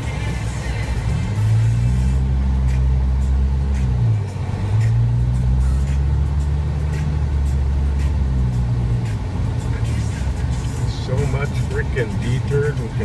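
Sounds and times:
car engine running: 0.0s - 13.0s
road noise: 0.0s - 13.0s.

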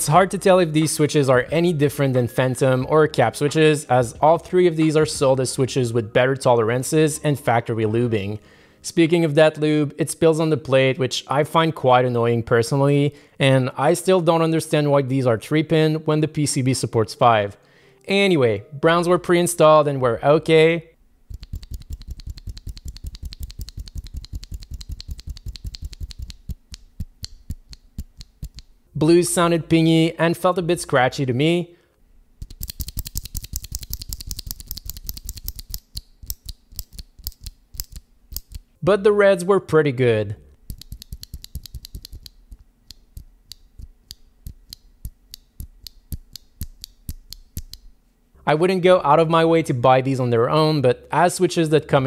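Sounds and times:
mechanical keyboard typing: 21.3s - 28.6s, 32.4s - 38.6s, 40.7s - 42.4s.

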